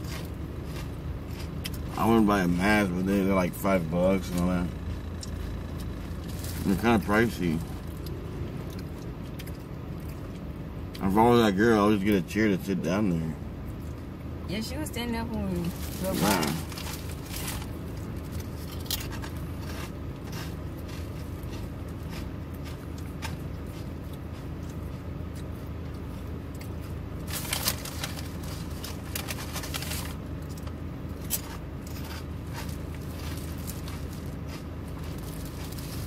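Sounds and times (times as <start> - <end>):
low hum inside car: 0.0 - 36.0
food wrapping crinkling: 15.7 - 23.8, 26.8 - 36.0.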